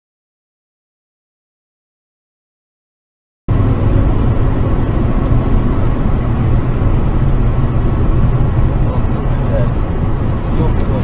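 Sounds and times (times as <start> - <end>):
car engine rumble: 3.5 - 11.0
tyre noise on road: 3.5 - 11.0.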